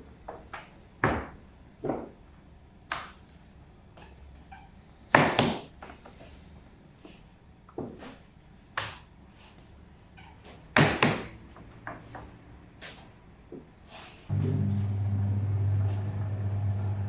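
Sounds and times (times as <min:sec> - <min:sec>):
steady motor hum: 0:14.3 - 0:17.0.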